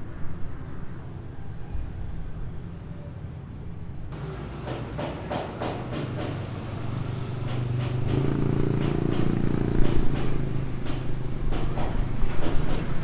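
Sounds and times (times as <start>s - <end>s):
vehicle engine running: 4.2s - 11.9s.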